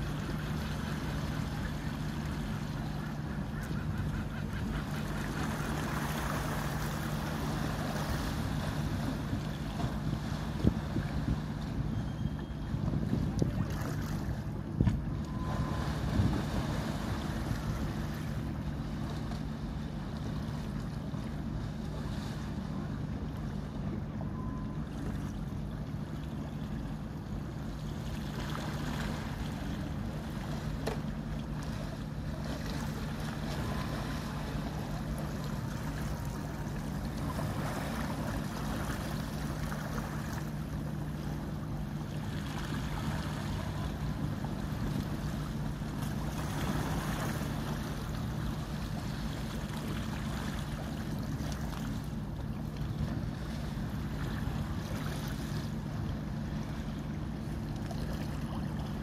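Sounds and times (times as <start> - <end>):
boat engine humming: 0.0 - 59.0
wind on microphone: 12.8 - 13.8, 14.7 - 17.0
water wash: 28.0 - 59.0.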